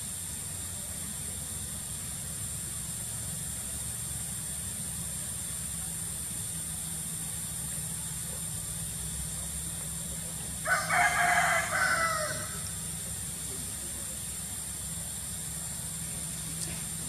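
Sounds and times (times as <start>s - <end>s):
loud animal call: 10.6s - 13.3s.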